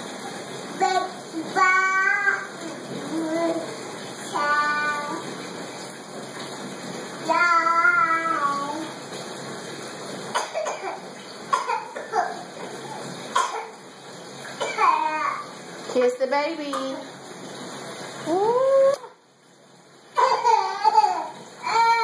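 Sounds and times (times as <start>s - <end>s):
toddler babbling and cooing: 0.8s - 3.7s, 7.3s - 8.8s, 20.2s - 22.0s.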